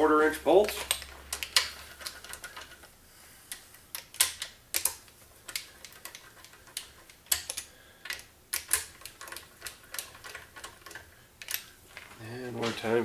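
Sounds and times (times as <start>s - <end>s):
hand ratchet clicking: 3.5s - 11.7s.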